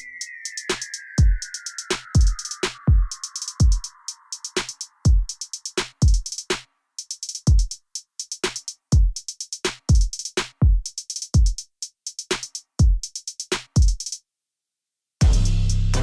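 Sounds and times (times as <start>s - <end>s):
drum machine beat: 0.0s - 14.2s, 15.2s - 16.0s
music with bass and chords: 15.2s - 16.0s.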